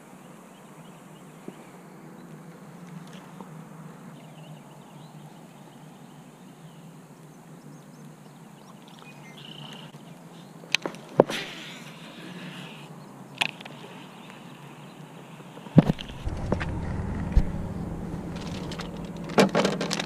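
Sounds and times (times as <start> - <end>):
low steady rumble: 15.8 - 20.0.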